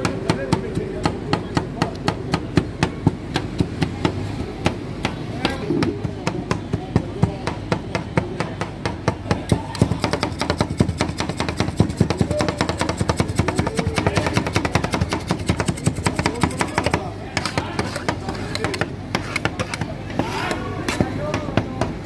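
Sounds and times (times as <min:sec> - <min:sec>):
metal spatulas chopping on steel plate: 0:08.6 - 0:21.9.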